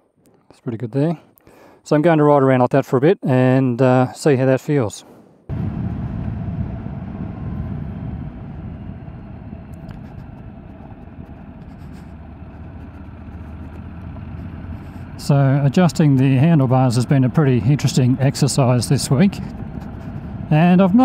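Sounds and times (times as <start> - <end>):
motorcycle engine and road rumble: 5.5 - 21.0.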